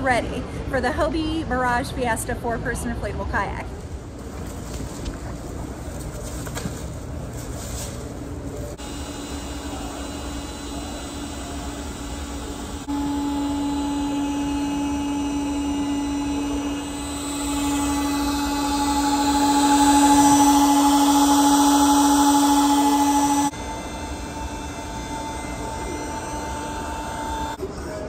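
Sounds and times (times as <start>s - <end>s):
electric air pump humming: 8.0s - 28.0s.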